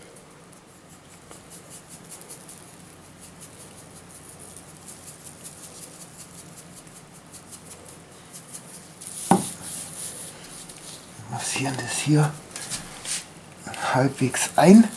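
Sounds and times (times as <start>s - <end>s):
salt grains pattering: 0.6s - 14.9s
gloves rustling: 5.1s - 14.9s.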